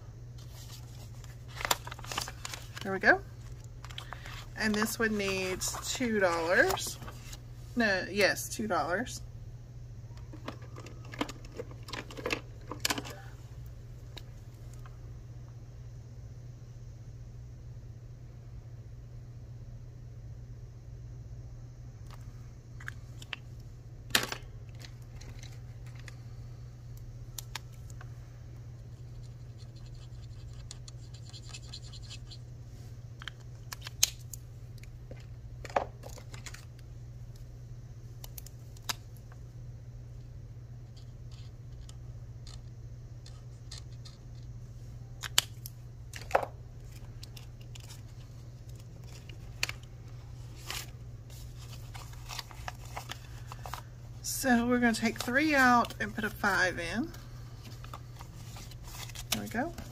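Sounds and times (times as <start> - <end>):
steady low hum: 0.0 - 59.9
marker scratching on card: 29.6 - 32.4.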